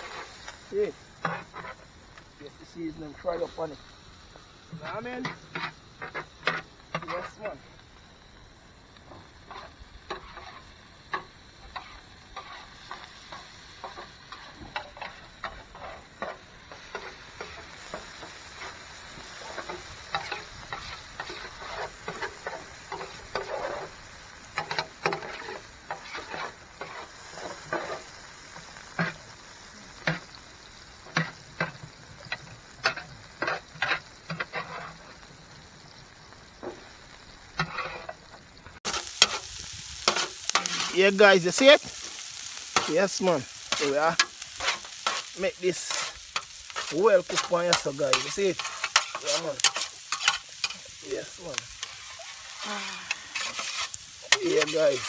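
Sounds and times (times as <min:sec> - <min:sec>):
vegetables sizzling on tray: 0:00.0 - 0:55.0
utensil scraping metal tray: 0:09.5 - 0:18.0, 0:19.4 - 0:24.0, 0:24.6 - 0:28.0, 0:32.3 - 0:35.1, 0:37.6 - 0:38.2, 0:38.9 - 0:41.8, 0:42.8 - 0:55.0.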